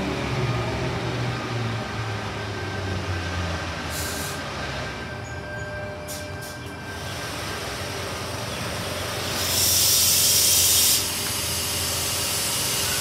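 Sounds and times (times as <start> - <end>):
electric train humming: 0.0 - 13.0
compressed air hissing: 9.2 - 13.0.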